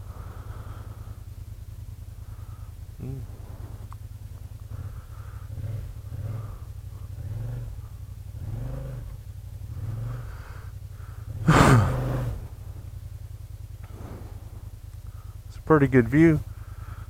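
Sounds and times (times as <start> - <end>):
scooter engine running: 0.0 - 17.0.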